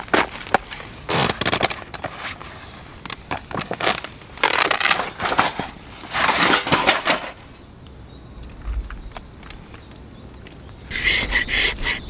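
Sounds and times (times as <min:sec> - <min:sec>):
rustling crunching handling noise: 0:00.0 - 0:07.6.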